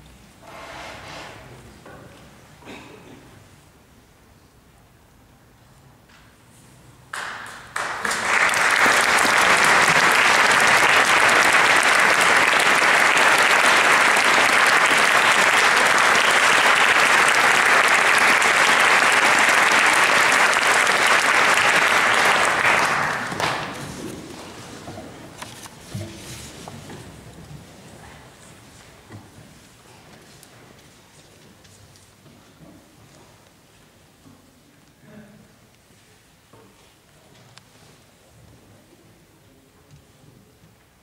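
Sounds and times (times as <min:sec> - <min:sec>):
audience applauding: 0:07.1 - 0:24.6.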